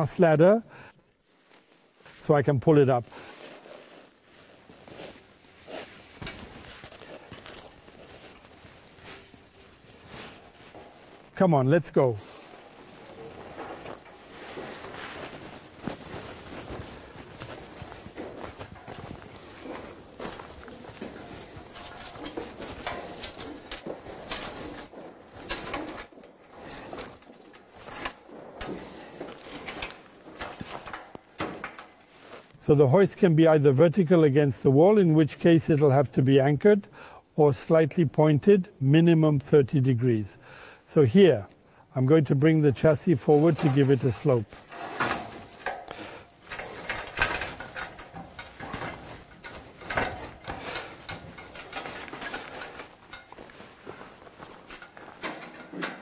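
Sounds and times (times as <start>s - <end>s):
metal ladder clicks and knocks: 6.2s - 11.4s, 12.2s - 32.4s, 43.1s - 56.0s.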